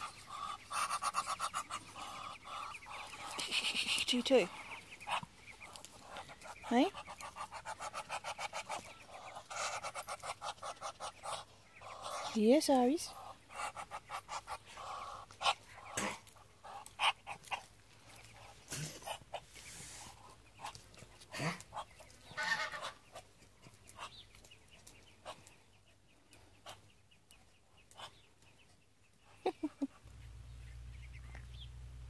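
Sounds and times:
ducks clucking: 0.0s - 32.0s
pecking and scratching clicks: 0.2s - 11.2s.

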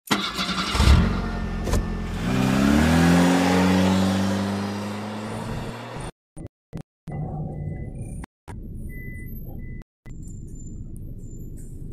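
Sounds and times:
minibus engine pulling away: 0.1s - 6.1s.

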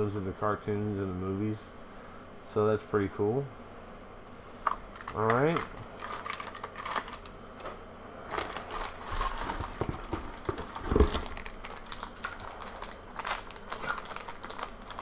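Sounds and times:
foil pack crinkling: 4.9s - 7.3s, 8.3s - 15.0s.

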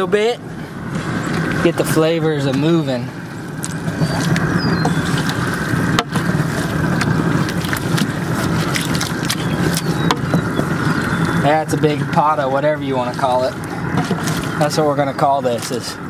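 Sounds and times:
propane burner roaring: 0.0s - 16.0s.

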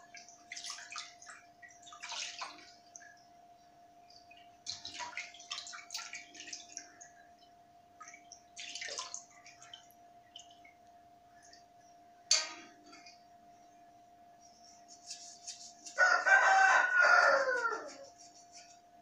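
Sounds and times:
water splashing and dripping: 0.0s - 3.3s, 4.0s - 7.3s, 8.0s - 11.6s
faint steady hum: 0.0s - 19.0s.

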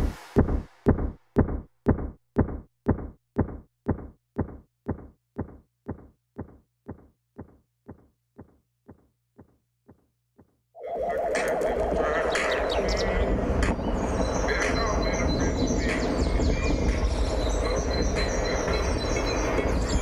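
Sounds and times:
low dull thuds pulse: 0.0s - 9.5s.

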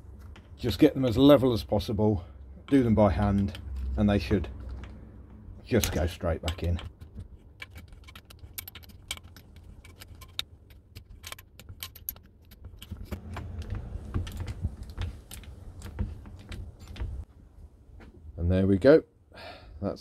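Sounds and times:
heavier handling noise: 2.5s - 18.2s.

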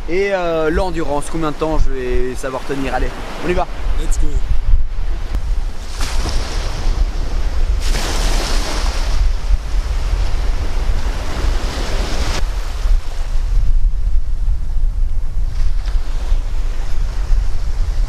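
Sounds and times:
sea surf washing in: 0.0s - 14.3s
wind buffeting microphone: 0.0s - 18.0s.

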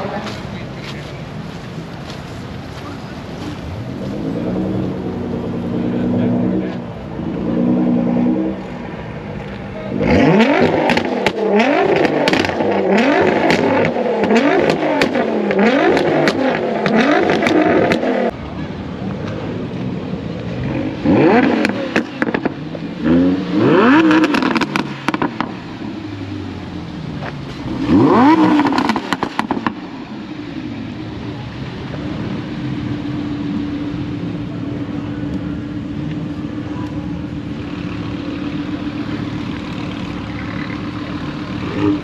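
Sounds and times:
car engine revving: 3.3s - 42.0s
exhaust crackles and pops: 9.4s - 18.4s, 19.0s - 22.9s, 23.8s - 25.8s, 27.0s - 30.2s.

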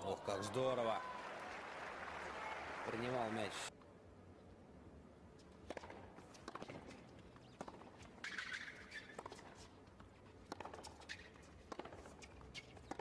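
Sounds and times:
ball bouncing: 5.6s - 9.7s, 10.4s - 13.0s
rackets striking tennis ball: 5.6s - 13.0s
shoe squeak on court: 6.5s - 9.8s, 10.6s - 13.0s.

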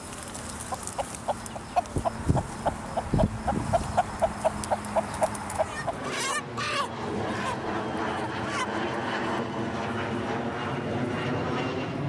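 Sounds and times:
rooster clucking: 0.7s - 7.6s.

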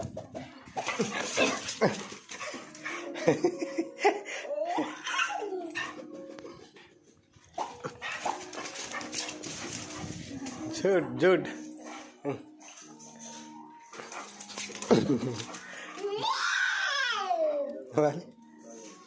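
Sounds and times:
dog yelping and whining: 4.7s - 6.3s.

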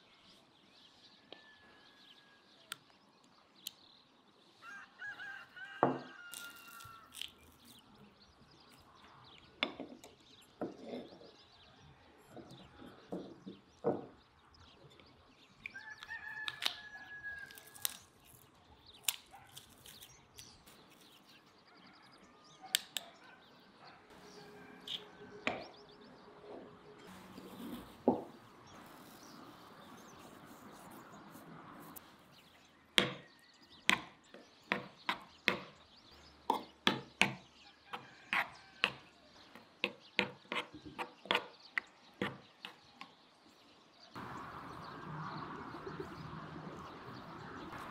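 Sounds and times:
rooster crowing: 4.6s - 7.1s, 15.7s - 17.8s, 24.2s - 26.3s.

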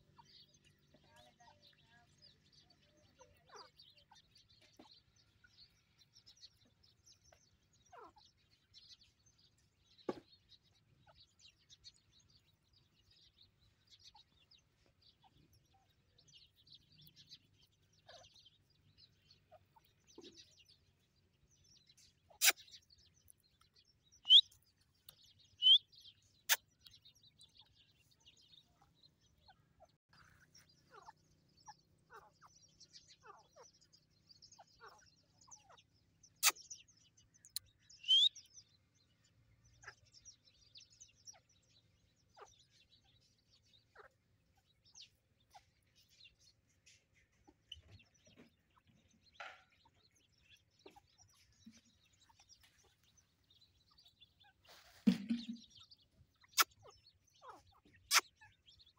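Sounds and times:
faint high chirps: 22.2s - 28.7s, 37.2s - 38.8s
birds clucking: 25.6s - 25.8s, 38.0s - 38.3s, 50.8s - 58.9s.

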